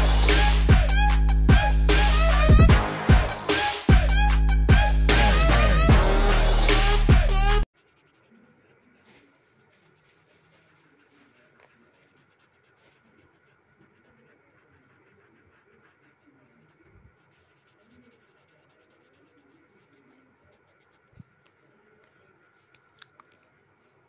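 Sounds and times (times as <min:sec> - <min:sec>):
pencil scratching on paper: 0:07.7 - 0:22.7.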